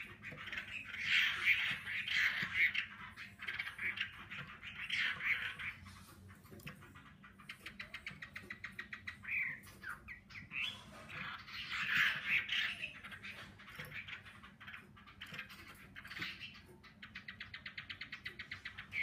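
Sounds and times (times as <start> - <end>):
bird singing: 0.0 - 19.0.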